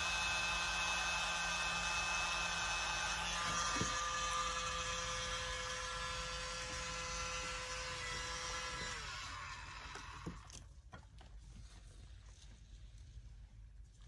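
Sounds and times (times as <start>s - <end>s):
mini blower whining: 0.0s - 10.6s.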